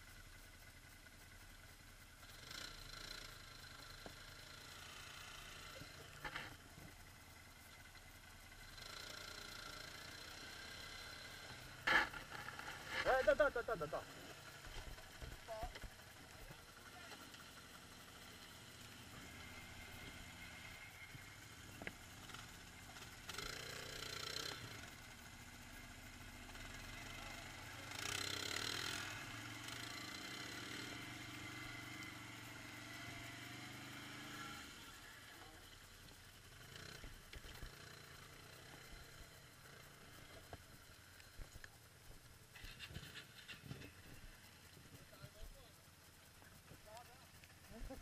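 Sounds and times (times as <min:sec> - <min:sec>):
quad engine running: 0:00.0 - 0:48.0.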